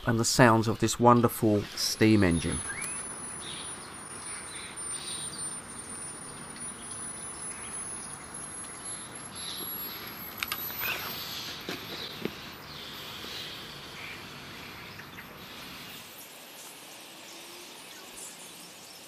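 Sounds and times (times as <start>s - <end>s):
distant birds chirping: 0.0s - 19.0s
steady hiss: 0.0s - 19.0s
sharp clicks: 10.3s - 10.8s.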